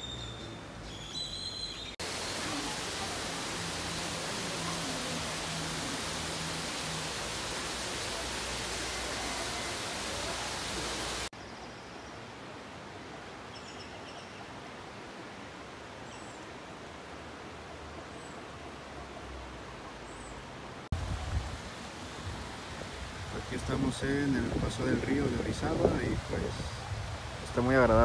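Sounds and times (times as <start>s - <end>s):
faint high bird chirps: 0.0s - 2.0s
steady outdoor hiss: 0.0s - 28.0s.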